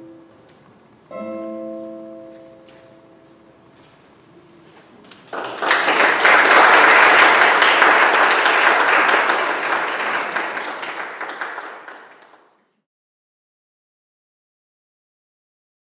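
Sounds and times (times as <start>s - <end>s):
audience applause: 5.0s - 12.6s.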